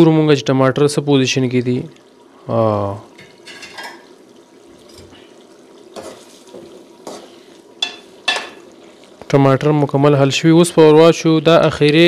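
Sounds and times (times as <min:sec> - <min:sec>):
gravy sizzling and bubbling: 0:00.0 - 0:12.0
spoon scraping and clinking pot: 0:03.2 - 0:04.1, 0:06.0 - 0:08.7.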